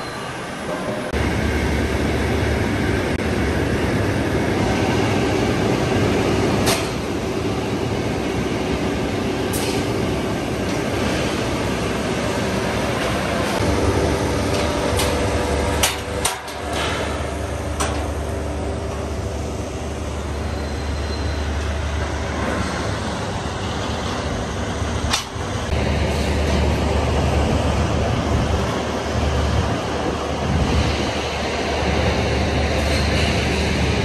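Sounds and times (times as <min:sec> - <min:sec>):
steady low rumble: 0:01.1 - 0:34.0
metallic clanks of steel rebar: 0:14.5 - 0:18.2.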